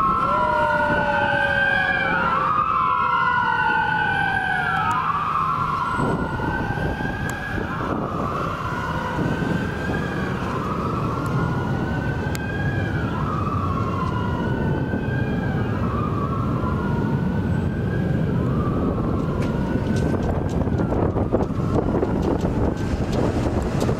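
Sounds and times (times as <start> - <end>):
fire engine sirens wailing: 0.0 - 23.9.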